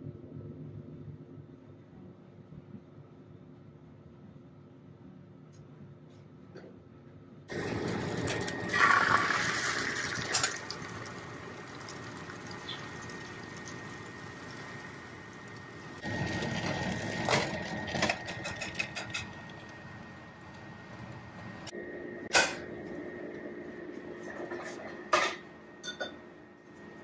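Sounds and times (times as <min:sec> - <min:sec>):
egg sizzling in a pan: 0:07.5 - 0:17.7.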